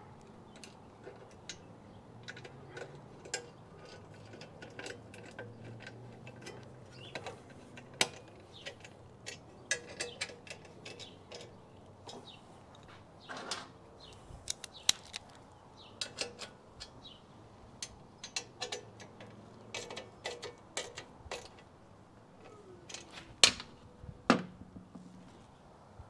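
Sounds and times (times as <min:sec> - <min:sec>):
light clicks and taps of tools: 0:00.2 - 0:13.0, 0:14.0 - 0:17.0, 0:17.8 - 0:21.7.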